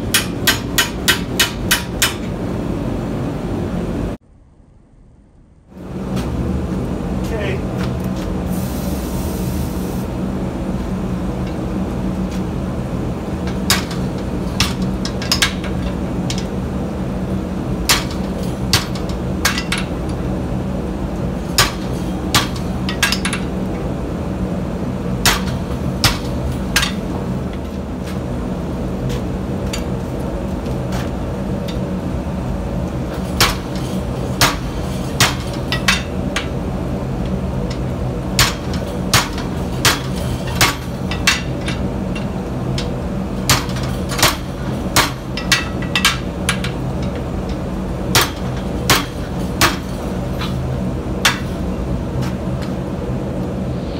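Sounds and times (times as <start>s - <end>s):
hammer striking hot steel: 0.0s - 2.3s, 13.4s - 16.6s, 17.8s - 20.1s, 21.5s - 23.5s, 25.2s - 27.1s, 33.1s - 36.6s, 37.7s - 50.6s, 51.2s - 51.6s
low hum: 0.0s - 53.9s.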